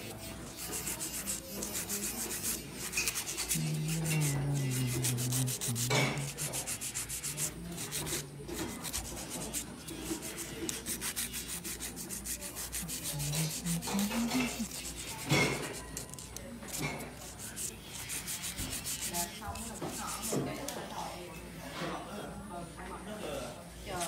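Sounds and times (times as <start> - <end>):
nail file rasping on nails: 0.0 - 20.7.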